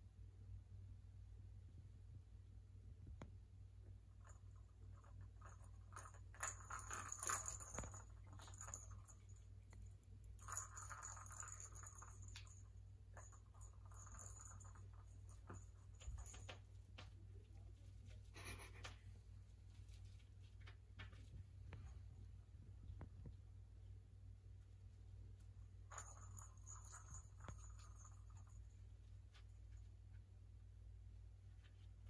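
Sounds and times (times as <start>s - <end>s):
ball rattling around toy track: 4.2s - 16.7s, 25.9s - 28.8s.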